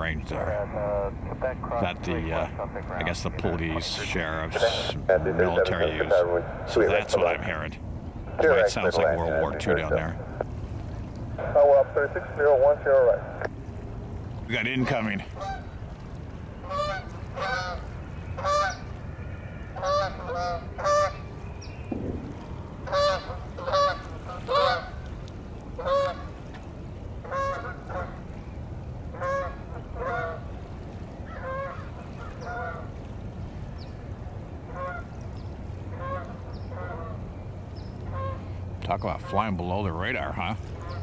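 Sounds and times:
steady low rumble: 0.0s - 41.0s
geese honking in flight: 14.8s - 15.7s, 16.6s - 21.2s, 22.8s - 25.0s, 25.8s - 26.3s, 27.2s - 28.2s, 29.1s - 30.5s, 31.2s - 32.9s, 34.7s - 35.2s, 35.9s - 37.2s, 38.0s - 38.6s.

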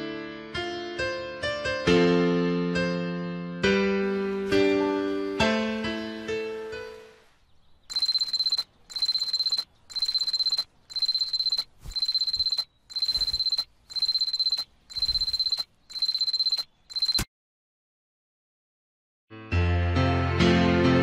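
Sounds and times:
alarm clock pulsing beep: 7.9s - 17.3s.

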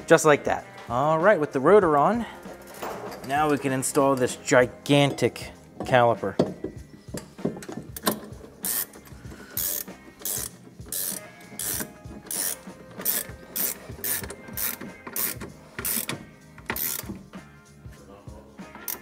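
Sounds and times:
ratchet wrench clicking: 7.6s - 17.2s.

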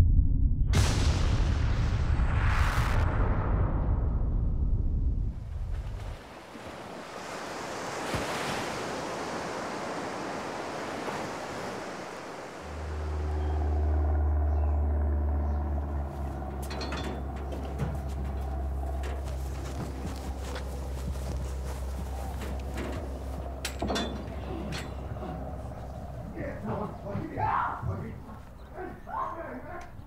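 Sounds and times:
waves washing onto sandy beach: 5.8s - 13.0s
loud low steady drone: 12.4s - 27.6s.

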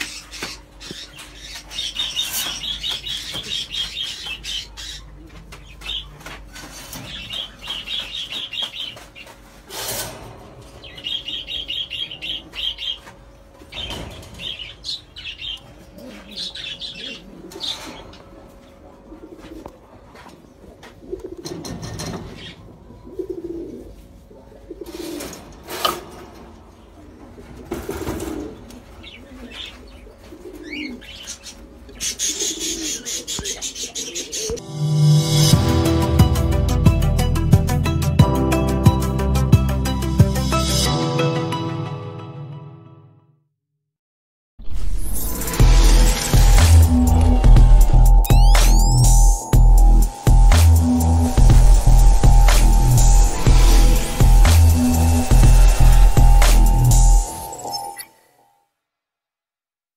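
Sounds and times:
pigeons cooing: 15.9s - 19.8s, 20.6s - 25.4s, 26.9s - 34.6s.

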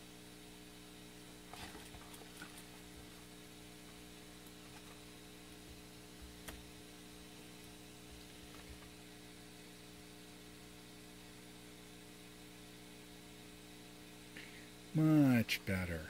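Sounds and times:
low mains hum with hiss: 0.0s - 16.0s.

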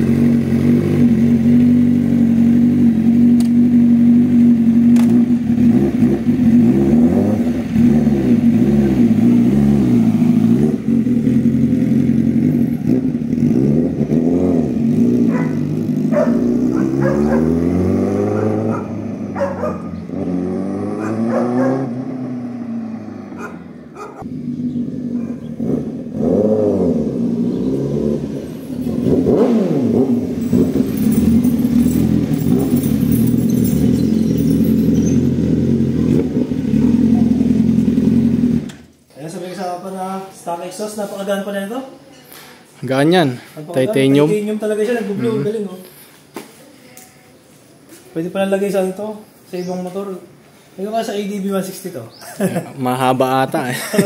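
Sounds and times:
motorcycle engine idling and revving: 0.0s - 40.1s.

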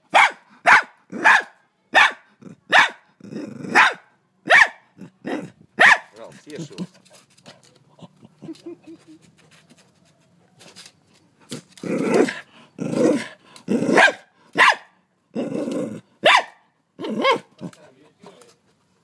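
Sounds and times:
dog barking: 0.1s - 3.1s, 3.7s - 6.1s, 13.9s - 15.0s, 16.2s - 17.5s.

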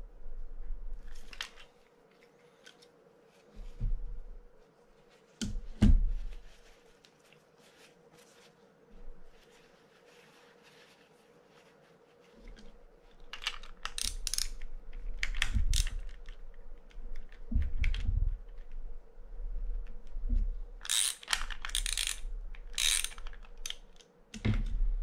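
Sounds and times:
ratchet wrench clicking: 13.8s - 14.6s, 20.8s - 23.8s.

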